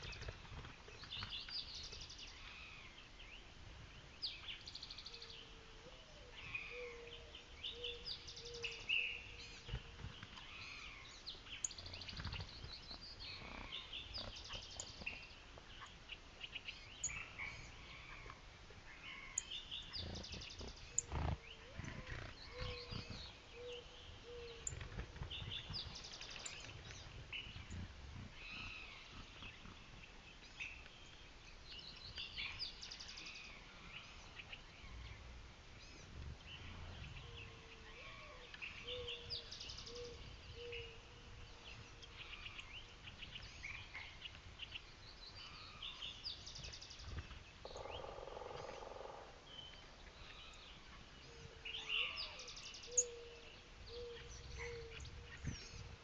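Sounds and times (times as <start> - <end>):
songbirds chirping and trilling: 0.0 - 56.0
dove cooing: 52.0 - 55.3.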